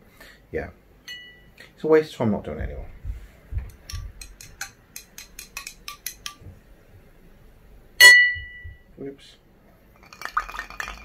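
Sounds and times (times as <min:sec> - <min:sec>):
spoon clinking against glass: 0:01.1 - 0:01.5, 0:08.0 - 0:08.7.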